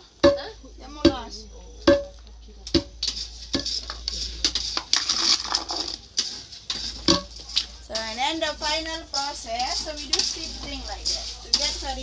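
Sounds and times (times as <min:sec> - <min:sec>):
pestle pounding in stone mortar: 0:00.2 - 0:12.0
gritty rustle of beans: 0:02.9 - 0:12.0.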